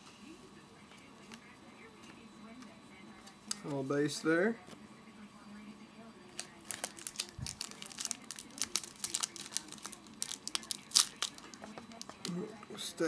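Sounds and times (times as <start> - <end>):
wrapper crinkling and tearing: 6.4 - 12.2.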